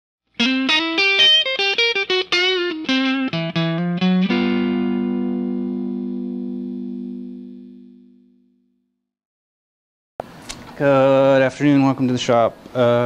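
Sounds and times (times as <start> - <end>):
electric guitar notes and chord: 0.4 - 8.8.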